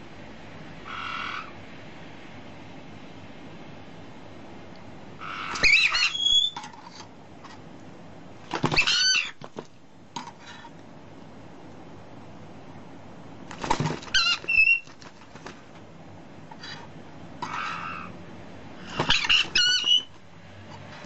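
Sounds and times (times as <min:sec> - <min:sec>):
parrot whistled calls: 0:05.2 - 0:06.6, 0:08.8 - 0:09.4, 0:14.1 - 0:14.9, 0:19.0 - 0:20.1.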